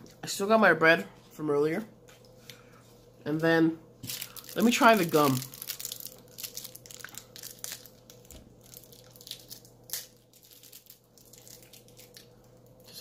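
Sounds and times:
wrapper crinkling and tearing: 4.0s - 13.0s.

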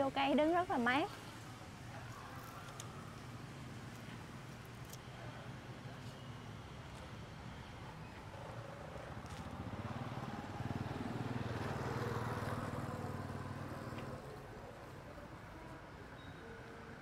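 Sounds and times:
vehicle engine passing by: 8.4s - 14.4s.

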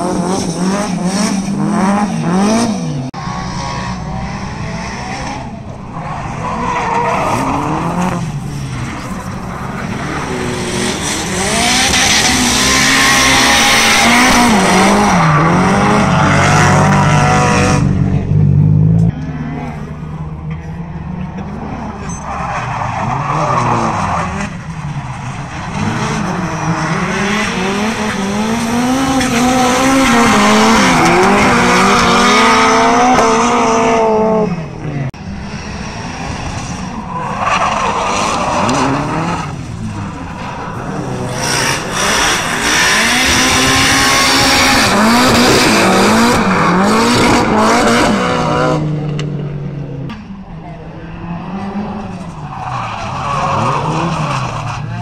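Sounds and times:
car engines revving hard: 0.0s - 55.0s.

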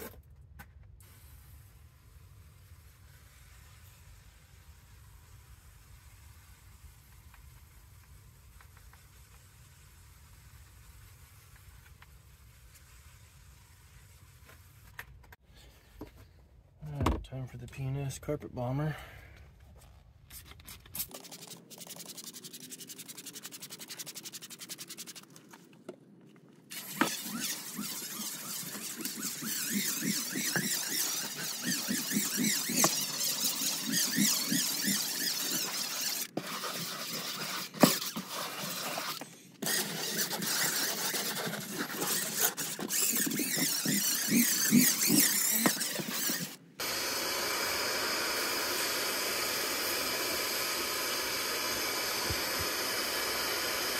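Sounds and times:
impact driver spinning drill brush: 21.0s - 25.4s, 26.7s - 53.9s
carpet extractor suction hiss: 26.7s - 53.9s.

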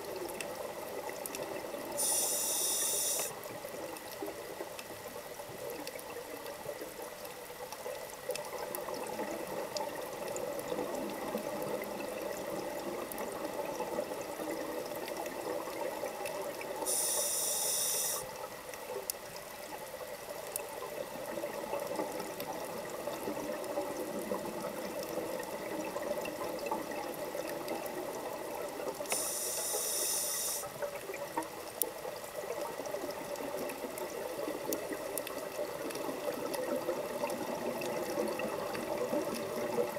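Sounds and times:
muffled underwater wash: 0.0s - 39.9s
scuba regulator hissing: 2.0s - 3.3s, 16.9s - 18.3s.

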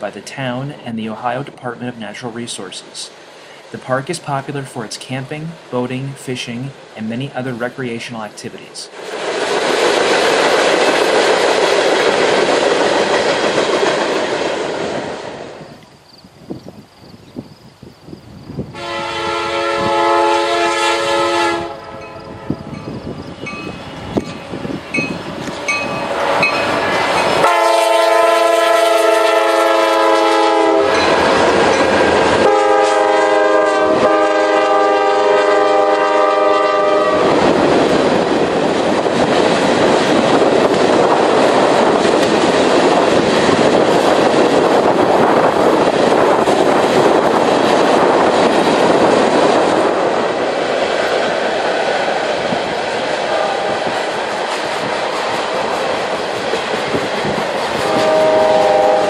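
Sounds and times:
freight train cars rumbling past: 0.0s - 59.0s
locomotive air horn blasts: 18.7s - 22.8s, 27.4s - 31.1s, 32.4s - 37.3s, 53.3s - 54.0s, 57.8s - 59.0s.

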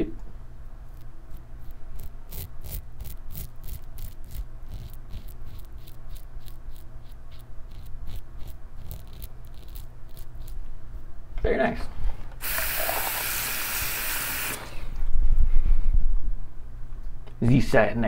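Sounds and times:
razor scraping stubble: 0.8s - 10.8s.

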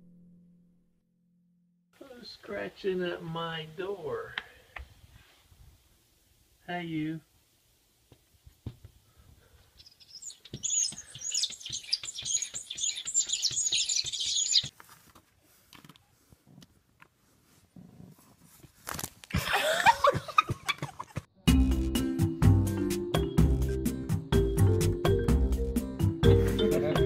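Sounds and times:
animal chirping and squeaking: 9.8s - 14.7s
music: 21.4s - 27.0s.

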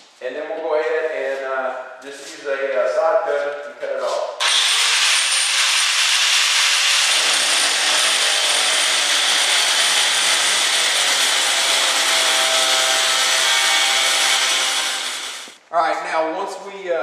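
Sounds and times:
angle grinder cutting steel: 4.4s - 15.6s.

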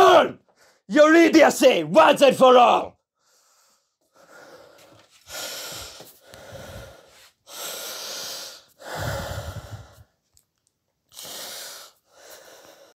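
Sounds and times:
man breathing heavily: 3.2s - 10.2s, 11.1s - 12.9s.

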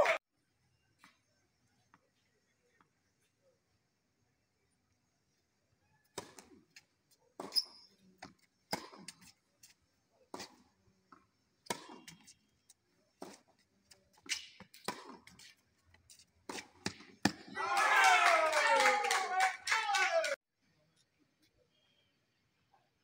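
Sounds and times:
people clapping: 0.0s - 0.2s, 17.6s - 20.4s
voices: 0.0s - 0.2s, 17.5s - 20.4s
tennis ball bouncing: 6.2s - 6.5s, 7.4s - 9.3s, 11.6s - 12.3s, 14.1s - 15.5s, 16.1s - 17.6s
tennis balls struck by rackets: 6.2s - 6.6s, 7.4s - 9.3s, 11.6s - 12.3s, 14.1s - 15.5s, 16.4s - 17.6s.

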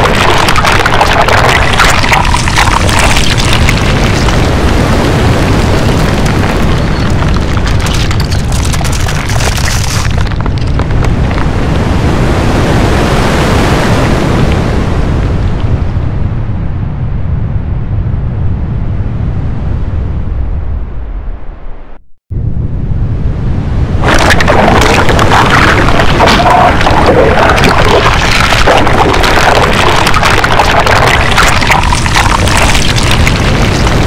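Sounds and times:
dense crackling and hiss: 0.0s - 15.7s, 24.0s - 34.0s
deep rumble: 0.0s - 34.0s.

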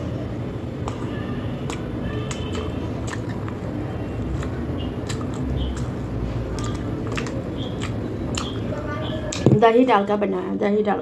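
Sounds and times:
wet chewing and lip smacks: 0.8s - 9.4s
fingers squishing food: 0.8s - 9.5s.

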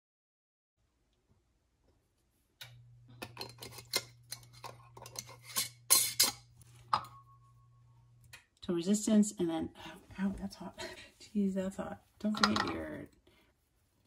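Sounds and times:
steady low hum: 2.6s - 11.4s
metal lid scraping on glass jar: 3.2s - 7.1s.

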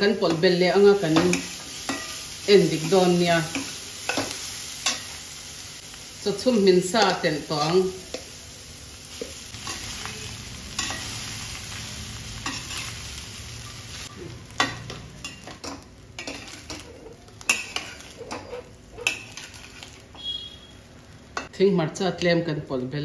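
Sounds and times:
rice sizzling in a pan: 0.0s - 21.5s
metal spatula scraping a pan: 14.7s - 20.6s.

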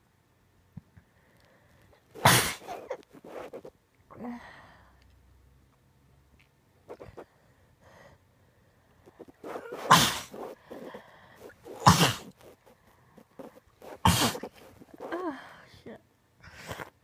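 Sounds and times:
person sneezing: 2.2s - 3.6s, 9.4s - 12.6s, 13.4s - 15.4s.

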